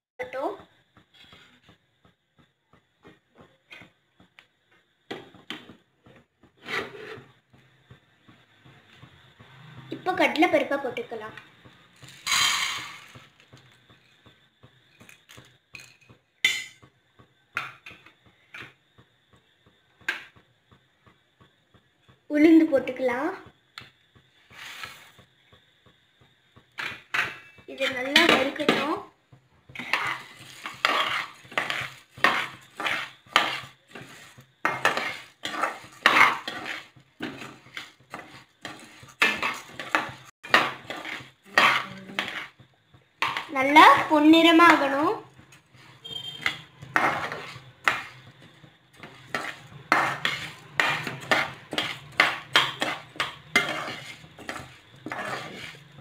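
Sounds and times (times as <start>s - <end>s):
spatula scraping metal pan: 6.6s - 7.3s, 26.8s - 29.0s, 29.7s - 56.0s
lentils rattling in pan: 11.8s - 14.1s, 29.7s - 45.8s, 46.6s - 56.0s
dried grains rattling into pan: 12.0s - 13.3s.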